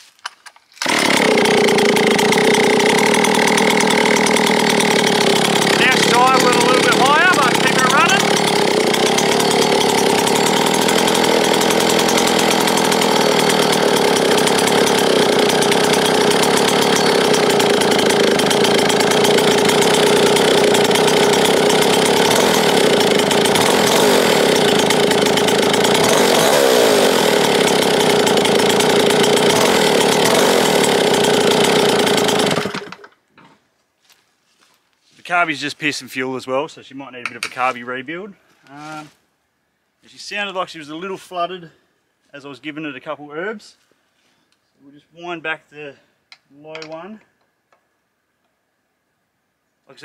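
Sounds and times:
chainsaw running: 0:00.8 - 0:33.2.

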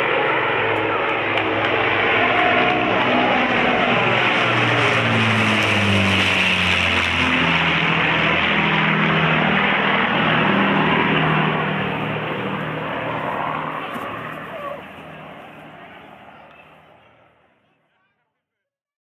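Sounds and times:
propeller plane flying overhead: 0:00.0 - 0:17.7.

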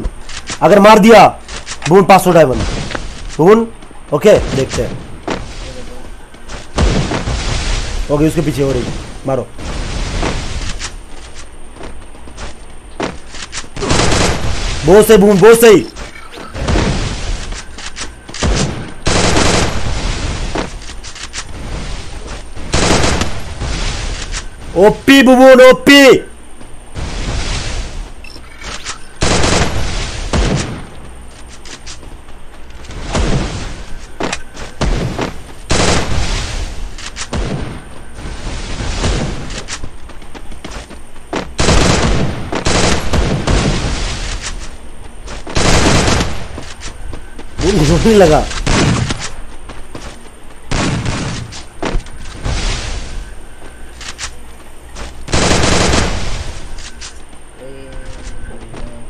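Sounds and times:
video game gunfire bursts: 0:18.1 - 0:20.4, 0:29.0 - 0:30.8, 0:41.6 - 0:44.0, 0:45.5 - 0:46.6, 0:55.3 - 0:56.6.

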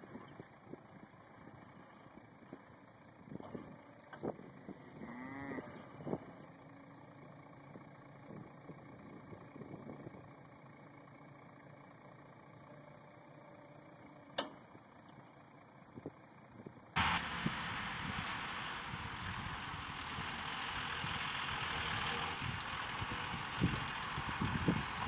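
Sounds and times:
truck engine idling: 0:05.9 - 0:25.0
short squeal: 0:23.5 - 0:24.0.

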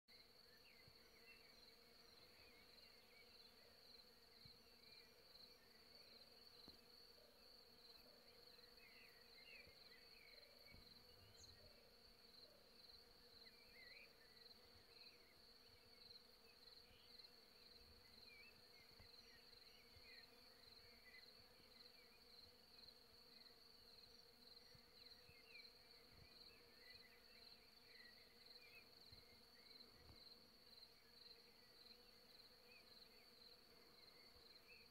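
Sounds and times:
faint chirps: 0:00.1 - 0:34.9.

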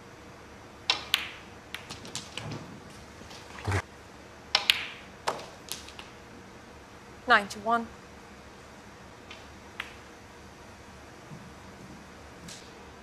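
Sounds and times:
snooker balls clicking: 0:00.8 - 0:03.8, 0:04.5 - 0:06.2, 0:09.2 - 0:10.1.

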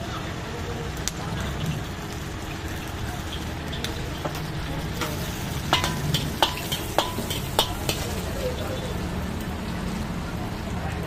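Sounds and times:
hot oil sizzling in a wok: 0:00.0 - 0:11.0
metal ladle clanking against wok: 0:03.8 - 0:08.4.

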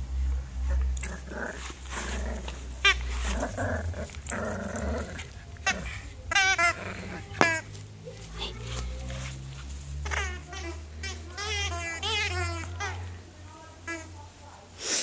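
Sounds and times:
puppy growling: 0:00.6 - 0:13.1.

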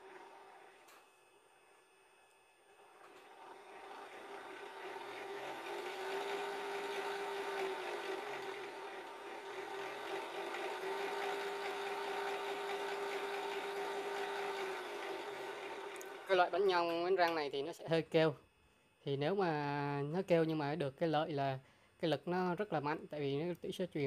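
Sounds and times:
geared motor whining: 0:02.8 - 0:16.9.

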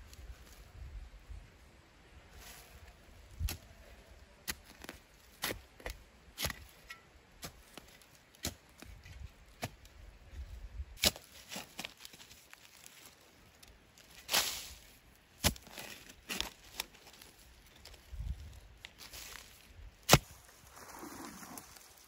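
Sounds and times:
shovel striking soil: 0:04.5 - 0:09.8, 0:11.0 - 0:12.2, 0:14.1 - 0:16.9, 0:19.0 - 0:21.6
shovel scraping: 0:14.0 - 0:17.4, 0:19.0 - 0:22.0.

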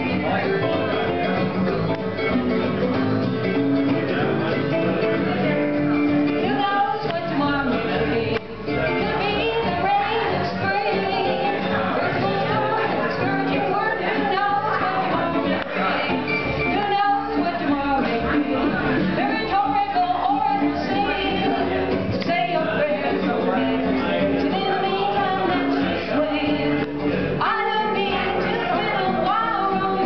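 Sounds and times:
plucked string instrument: 0:00.0 - 0:30.0
upright bass: 0:00.0 - 0:30.0
woman singing: 0:06.4 - 0:30.0.

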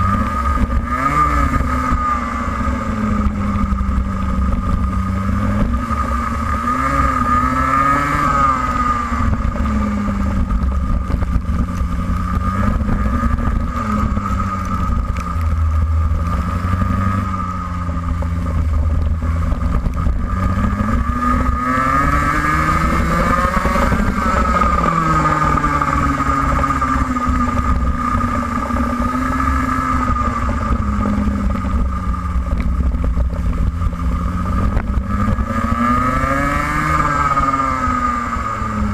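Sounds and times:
kart engine revving: 0:00.0 - 0:38.9
low rumble: 0:00.0 - 0:38.9.

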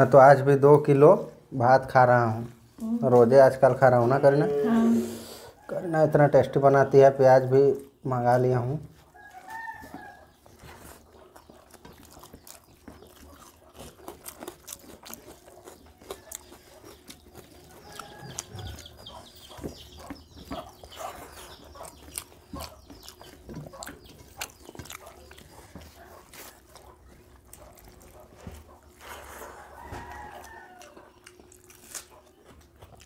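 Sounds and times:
chewing and lip smacks: 0:08.9 - 0:33.0
fingers mixing wet rice: 0:08.9 - 0:33.0.

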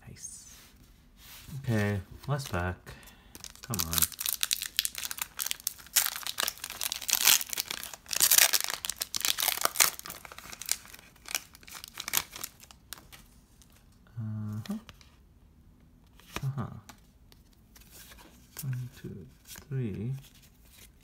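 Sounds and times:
foil wrapper tearing and crinkling: 0:03.4 - 0:13.0.

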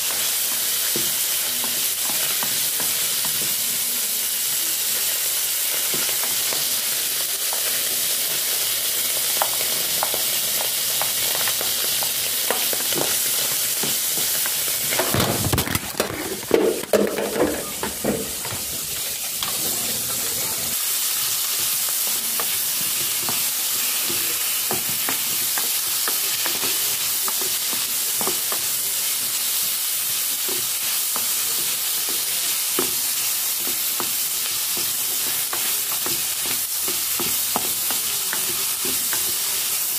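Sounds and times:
meat sizzling in a pot: 0:00.0 - 0:39.9
knocks and clatter: 0:15.0 - 0:18.6.

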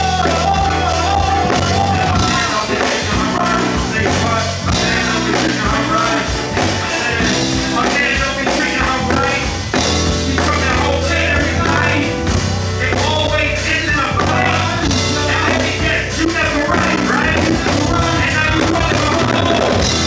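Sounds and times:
live band playing: 0:00.0 - 0:20.0
person singing into microphone: 0:00.0 - 0:20.0.

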